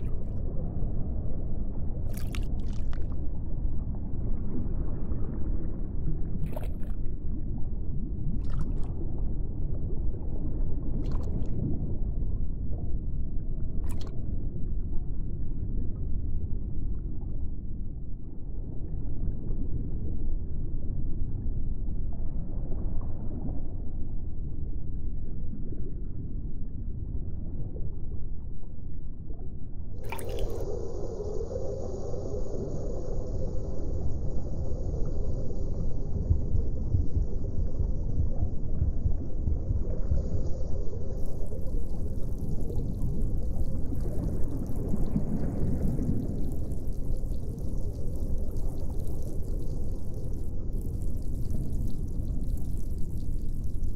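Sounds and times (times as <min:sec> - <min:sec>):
liquid gurgles and drips: 0:00.0 - 0:01.3, 0:01.9 - 0:10.1, 0:10.8 - 0:12.9, 0:13.6 - 0:14.4, 0:29.2 - 0:30.8, 0:34.4 - 0:53.9
steady low hum: 0:24.4 - 0:53.9.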